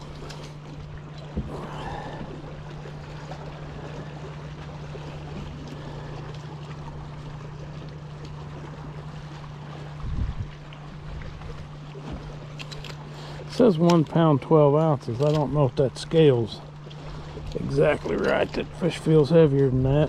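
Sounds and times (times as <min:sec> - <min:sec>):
boat motor humming: 0:00.0 - 0:20.0
water lapping: 0:00.0 - 0:20.0
wind noise: 0:10.0 - 0:10.5.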